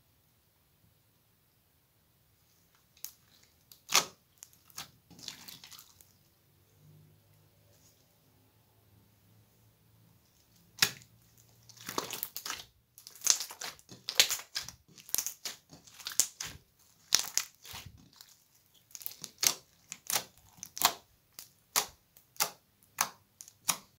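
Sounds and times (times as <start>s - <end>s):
sticky slime pops and crunches: 3.0s - 5.6s, 10.7s - 11.1s, 11.7s - 24.0s.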